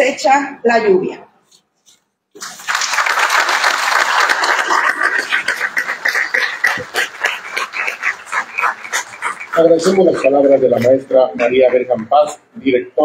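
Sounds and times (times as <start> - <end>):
audience applauding: 2.4 - 9.7.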